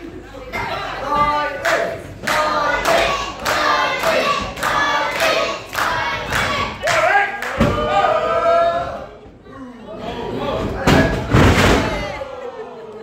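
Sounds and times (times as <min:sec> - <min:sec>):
crowd chanting sing-song: 0:00.6 - 0:06.8
rhythmic clapping: 0:01.6 - 0:07.6.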